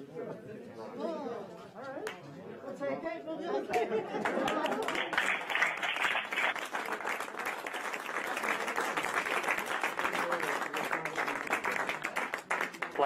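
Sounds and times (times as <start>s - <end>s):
crowd applauding: 4.2s - 13.0s.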